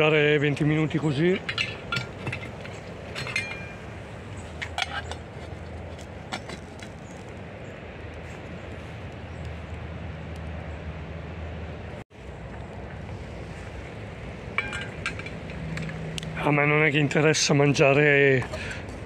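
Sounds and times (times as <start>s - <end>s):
metal pot lid clinking: 14.6s - 15.4s.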